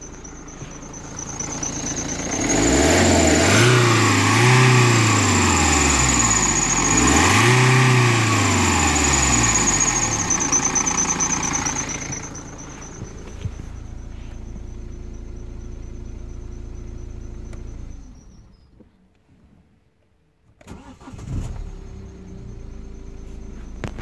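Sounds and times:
diesel engine revving and idling: 0.0 - 18.6, 20.6 - 24.0.

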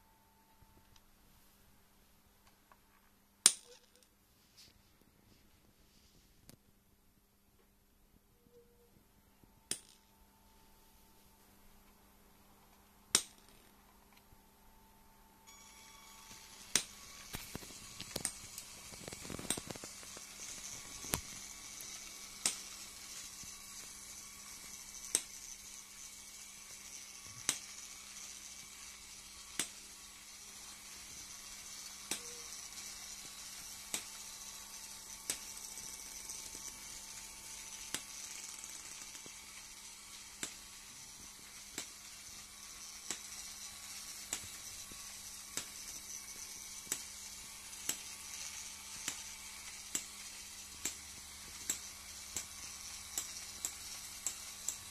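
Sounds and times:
toy train motor whirring: 15.5 - 54.9
train track click: 47.8 - 54.9.

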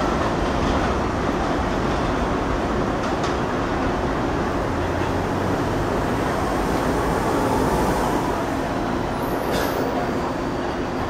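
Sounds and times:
train wheels rumbling on rail: 0.0 - 11.0.

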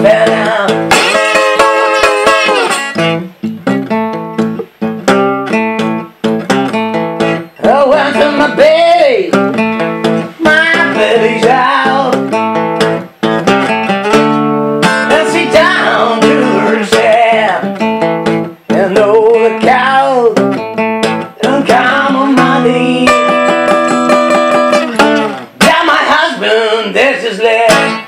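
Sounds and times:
acoustic blues guitar: 0.0 - 28.0.

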